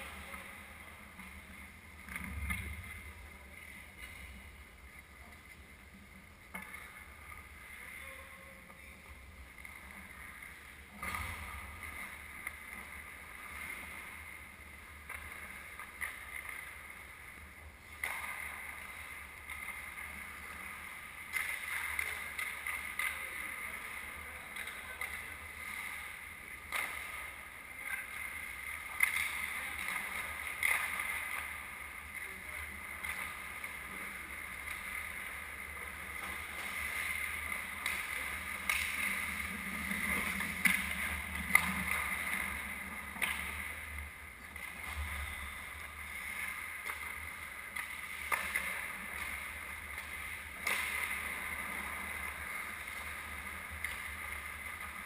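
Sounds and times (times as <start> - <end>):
skate blades scraping ice: 9.7 - 55.0
stick or puck clack: 17.9 - 19.8, 21.3 - 23.9, 24.5 - 31.6, 35.9 - 45.1, 46.5 - 51.9.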